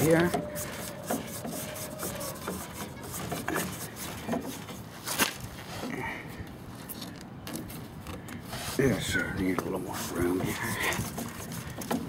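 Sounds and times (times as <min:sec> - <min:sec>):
plastic hose rubbing and clicking: 0:00.0 - 0:05.9, 0:06.8 - 0:12.0.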